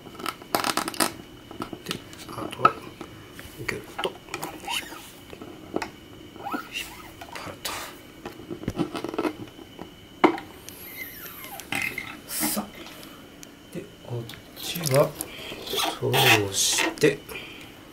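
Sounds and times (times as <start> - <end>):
guitar string rubbing and squeaking: 6.4 - 7.3, 10.8 - 12.2, 15.6 - 17.0.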